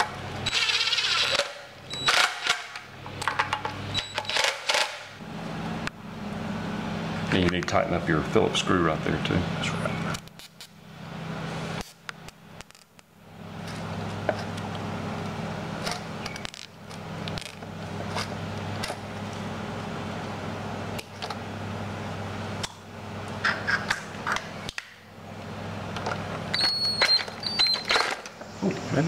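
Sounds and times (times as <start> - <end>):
steady low hum: 0.0 - 29.0
short high squeaks: 0.4 - 2.4, 26.5 - 28.8.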